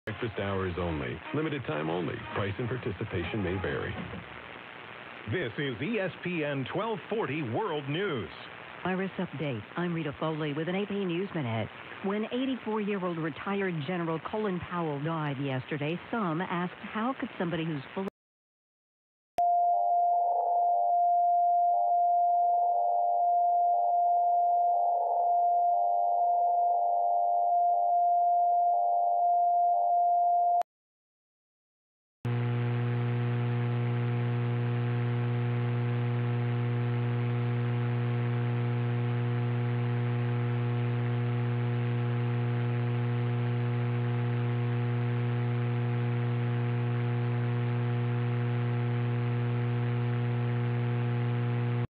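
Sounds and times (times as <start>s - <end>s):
steady radio beat tone: 0.1s - 13.3s
radio static hiss: 0.1s - 18.1s, 32.3s - 51.9s
buzzing hum: 32.3s - 51.9s.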